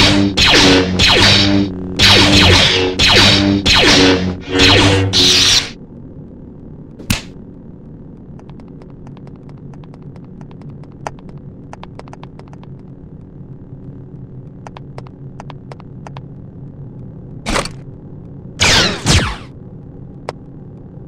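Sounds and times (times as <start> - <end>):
blaster shot zaps: 0.0 - 5.8, 7.0 - 7.3, 18.6 - 19.5
lightsaber hum: 0.0 - 21.0
faint clicks: 8.1 - 13.3, 14.6 - 16.3.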